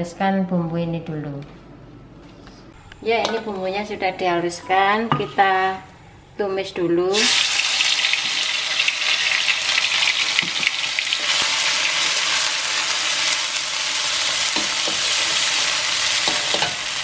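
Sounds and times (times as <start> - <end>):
spice paste sizzling in hot oil: 7.1 - 17.0.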